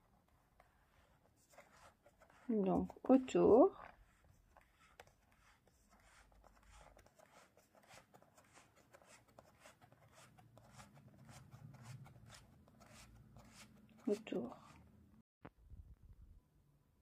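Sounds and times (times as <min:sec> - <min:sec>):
card rasping against card: 0:03.9 - 0:14.9.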